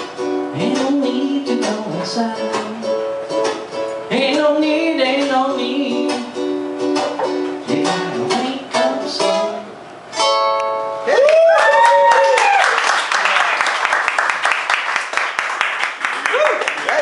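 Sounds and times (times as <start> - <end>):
ukulele strumming: 0.0 - 11.0
man singing: 0.5 - 3.1, 4.1 - 6.5, 7.6 - 9.8
person whooping: 11.0 - 13.5, 16.2 - 17.0.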